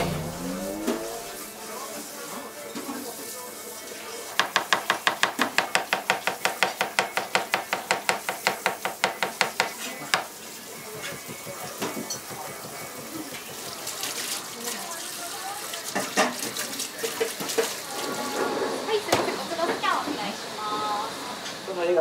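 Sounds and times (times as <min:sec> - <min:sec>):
knife chopping on cutting board: 0:04.4 - 0:13.8.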